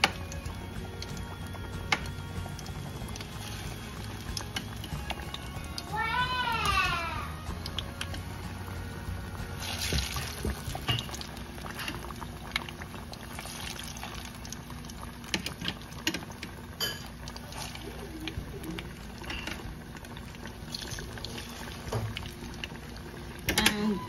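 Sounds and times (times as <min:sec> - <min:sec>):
oil sizzling and bubbling: 0:00.0 - 0:24.0.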